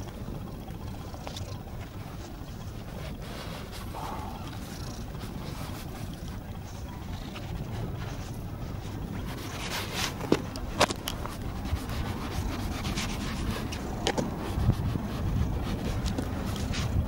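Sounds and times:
low microphone rumble: 0.0s - 9.6s.

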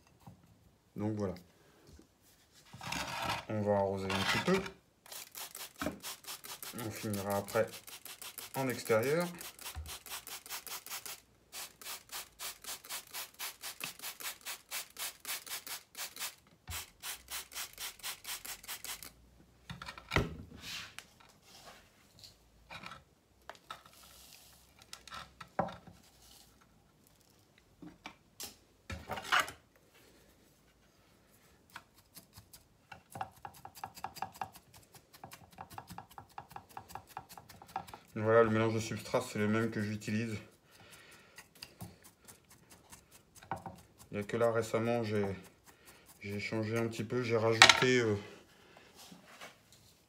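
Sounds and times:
chopstick scratching gritty soil: 4.0s - 11.1s, 31.7s - 32.7s, 33.3s - 47.2s
spray bottle squirting: 5.0s - 19.2s.

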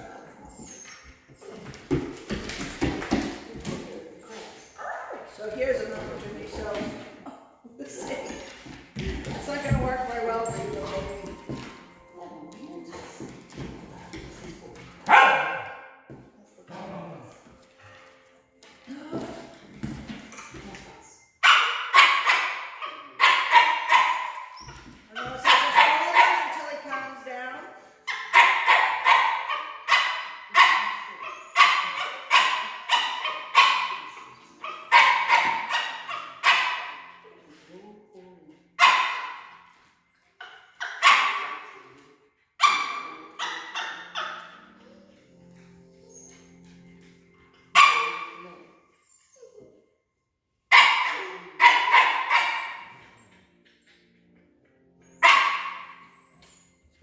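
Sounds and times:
dog barking: 15.1s - 15.9s, 21.4s - 24.6s, 25.3s - 26.6s, 28.1s - 37.2s, 38.8s - 39.6s, 40.4s - 41.9s, 42.6s - 44.6s, 47.8s - 48.6s, 50.7s - 53.0s, 55.2s - 56.1s.

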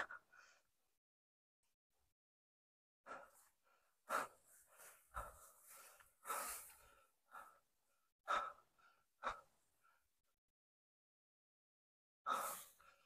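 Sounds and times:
person breathing hard: 0.0s - 0.8s, 3.0s - 10.4s, 12.3s - 13.0s.

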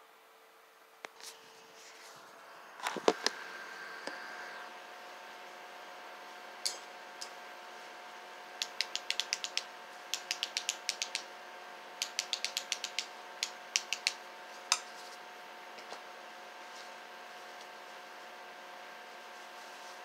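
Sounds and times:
small hard objects clicking: 8.6s - 11.2s, 12.0s - 13.1s.

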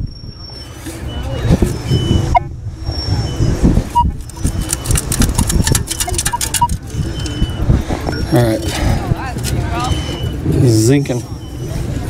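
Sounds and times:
metal detector beeps: 0.0s - 8.7s, 9.8s - 11.8s
rapid clicking and rattling: 4.2s - 7.0s.

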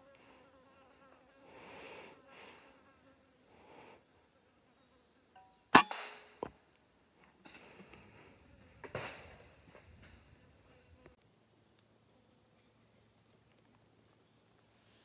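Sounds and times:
airgun shot: 5.8s - 6.5s.

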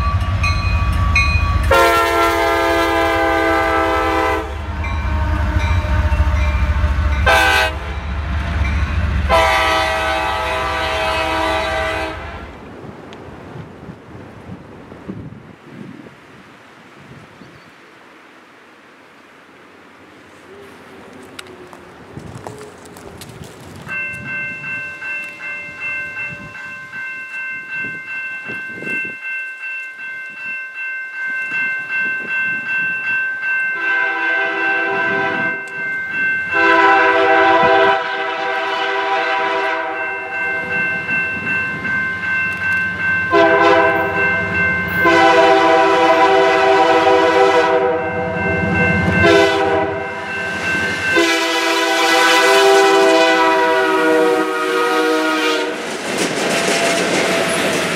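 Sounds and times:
locomotive bell ringing: 0.0s - 12.2s, 23.8s - 55.4s
train air horn blasts: 1.1s - 8.1s, 9.2s - 12.5s, 33.8s - 35.6s, 36.5s - 40.7s, 43.3s - 44.2s, 45.0s - 48.4s, 49.1s - 55.9s.

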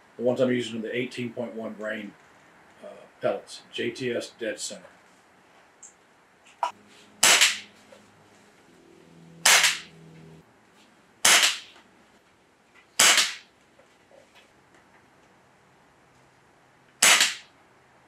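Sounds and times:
air rifle shots: 7.2s - 7.7s, 9.4s - 9.9s, 11.2s - 11.8s, 13.0s - 13.5s, 17.0s - 17.5s.

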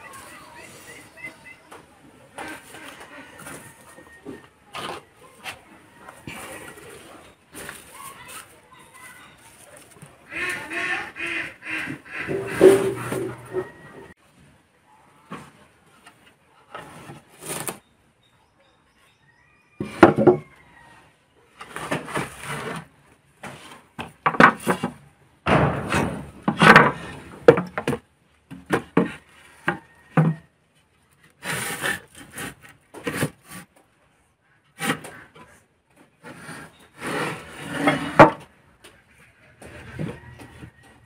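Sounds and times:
wooden planks scraping on metal: 2.4s - 14.2s, 21.6s - 28.0s, 31.1s - 33.8s, 34.7s - 38.6s
wooden planks knocking: 24.0s - 30.4s.

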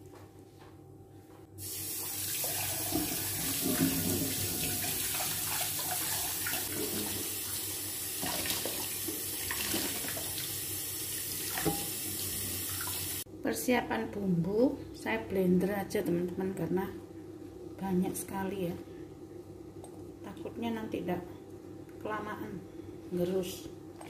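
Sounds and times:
tap water running into sink: 1.6s - 13.2s.

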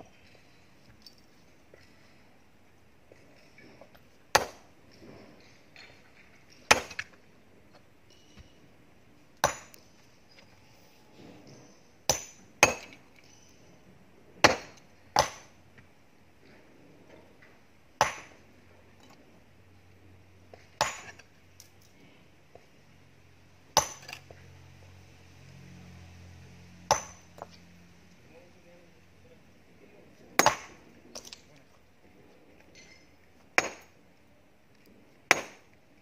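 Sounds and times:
ringing clinks of stone: 8.1s - 8.7s, 32.7s - 34.0s.

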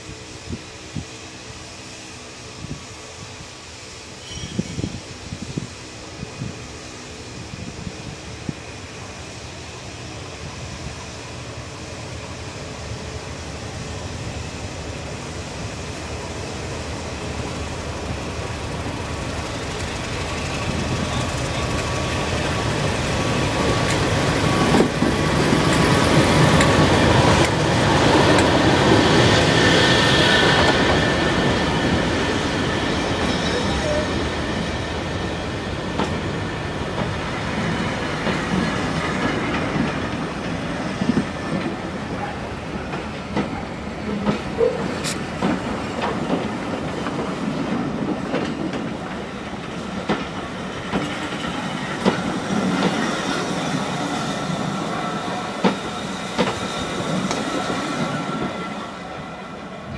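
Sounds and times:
diesel locomotive engine passing: 0.0s - 59.9s
wheels clicking over rail joints: 35.9s - 54.0s.

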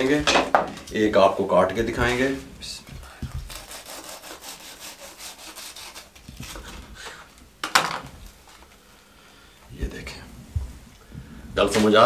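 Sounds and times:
knife sawing through toasted bread: 3.4s - 6.8s.

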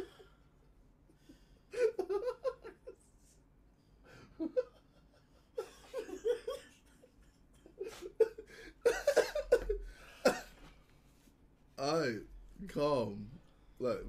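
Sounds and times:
men laughing: 1.7s - 3.1s, 4.1s - 10.6s.

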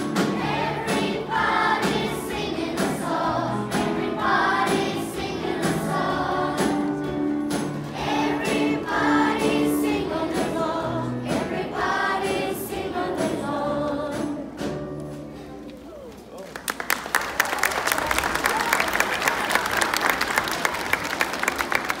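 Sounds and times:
audience singing along: 0.0s - 14.8s
children's choir singing: 0.0s - 14.8s.

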